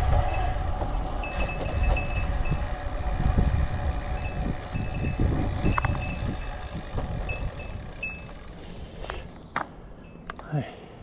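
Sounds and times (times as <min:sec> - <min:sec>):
wind on microphone: 0:00.0 - 0:08.4.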